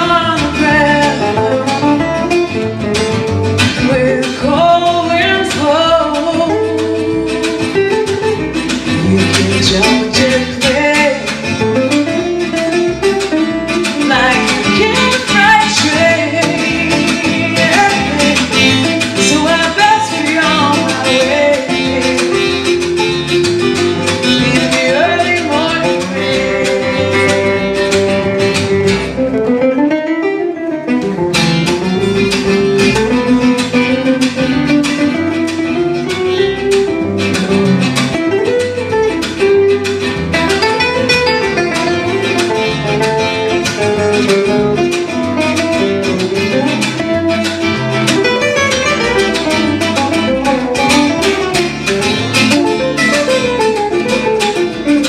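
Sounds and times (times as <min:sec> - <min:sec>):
acoustic guitar solo: 0:00.0 - 0:55.0
guitar and bass accompaniment: 0:00.0 - 0:55.0.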